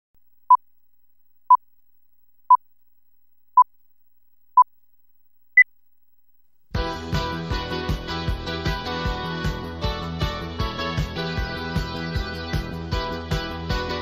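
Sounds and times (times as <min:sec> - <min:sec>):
music with a beat: 0:06.8 - 0:14.0.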